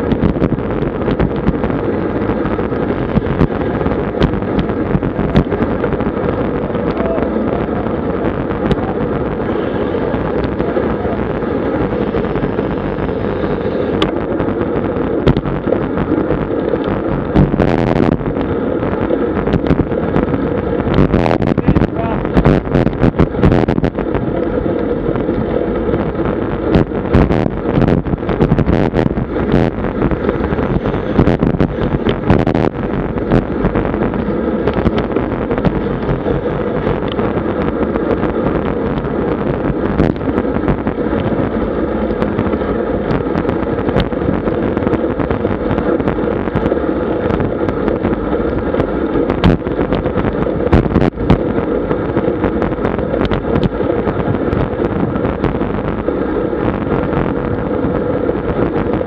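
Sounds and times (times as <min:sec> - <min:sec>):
road noise: 0:00.0 - 0:59.0
wind rushing over microphone: 0:00.0 - 0:59.0
bike knocking over bumps: 0:16.6 - 0:17.6.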